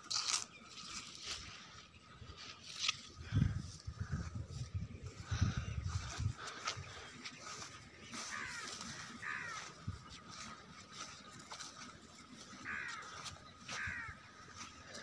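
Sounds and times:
harsh bird calls: 0:04.6 - 0:15.0.

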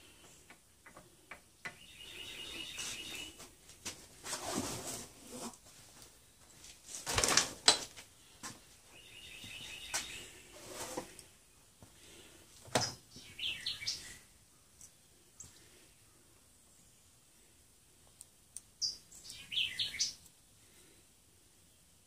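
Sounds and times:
small birds chirping: 0:00.0 - 0:03.6, 0:08.2 - 0:20.9.

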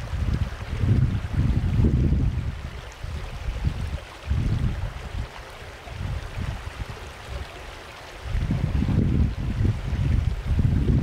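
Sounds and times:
wind buffeting microphone: 0:00.0 - 0:11.0
faint outdoor ambient hiss: 0:02.3 - 0:08.4.

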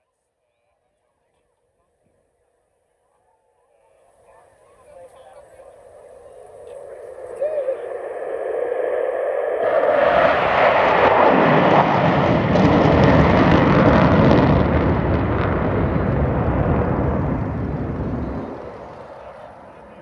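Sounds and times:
jet engines roaring: 0:04.7 - 0:20.0.

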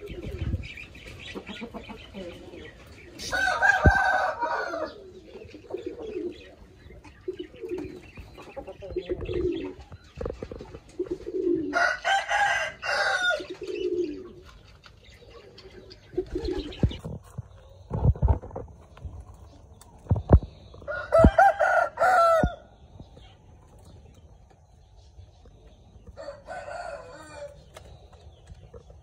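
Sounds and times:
rooster crowing: 0:03.3 - 0:05.0, 0:11.7 - 0:13.5, 0:20.9 - 0:22.7, 0:26.2 - 0:27.6.

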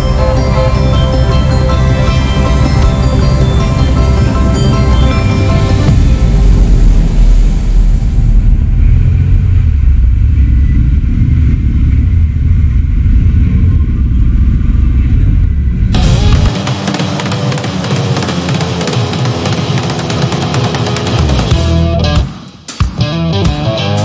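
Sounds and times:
loud rock music: 0:00.0 - 0:09.7, 0:15.9 - 0:24.0
motorcycle engine rumble: 0:00.0 - 0:21.8.

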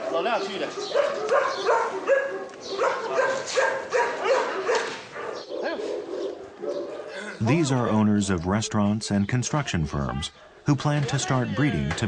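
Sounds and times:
dogs barking: 0:00.0 - 0:08.2, 0:10.3 - 0:10.7.

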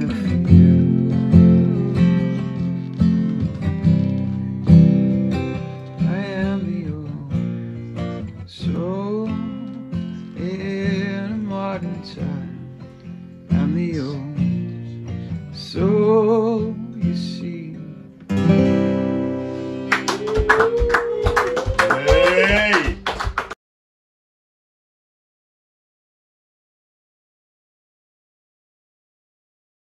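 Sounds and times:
man singing with vibrato: 0:00.0 - 0:02.7, 0:06.0 - 0:07.5, 0:08.5 - 0:12.8, 0:13.5 - 0:14.6, 0:15.6 - 0:18.1
strummed acoustic guitar: 0:00.0 - 0:20.2.

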